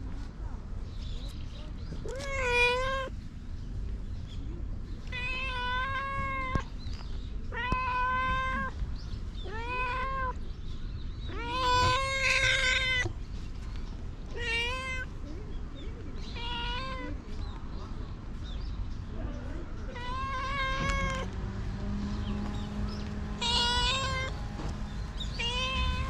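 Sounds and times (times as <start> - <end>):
cat meowing: 2.0 - 3.1, 5.0 - 6.7, 7.5 - 8.8, 9.4 - 10.4, 11.3 - 13.1, 14.3 - 15.1, 16.3 - 17.2, 19.9 - 21.3, 23.4 - 24.4, 25.3 - 26.0.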